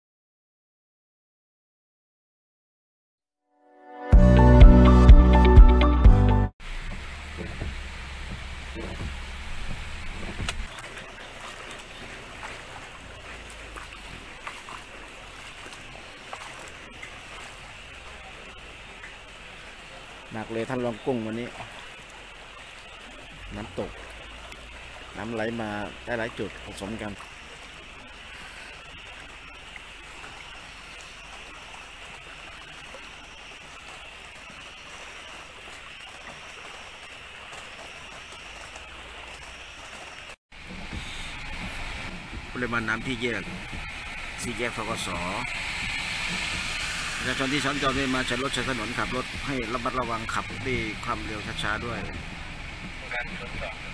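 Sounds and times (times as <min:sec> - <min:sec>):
rain and floodwater hiss: 0:06.6 - 0:53.9.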